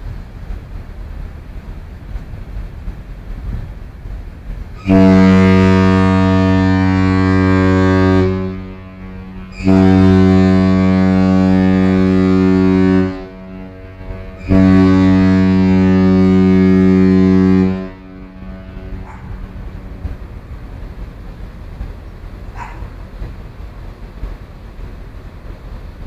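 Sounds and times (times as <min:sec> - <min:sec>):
ship horn deep blasts: 0:04.8 - 0:24.8.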